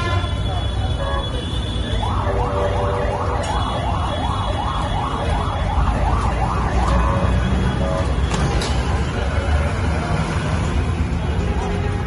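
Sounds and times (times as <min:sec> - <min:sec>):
low traffic rumble: 0:00.0 - 0:12.0
emergency siren yelping: 0:01.9 - 0:08.1.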